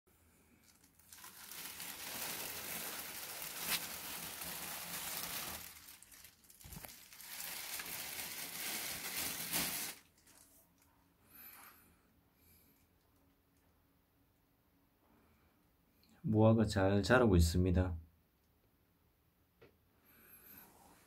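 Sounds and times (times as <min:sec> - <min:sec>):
plastic bag crinkling: 0:00.6 - 0:10.9.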